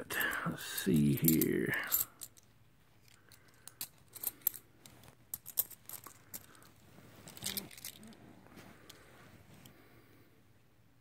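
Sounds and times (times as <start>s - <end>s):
coins clinking: 3.6s - 4.6s, 5.3s - 6.7s.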